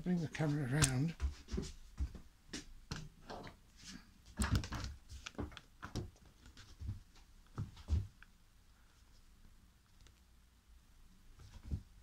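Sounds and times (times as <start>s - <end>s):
footsteps: 0.2s - 3.1s.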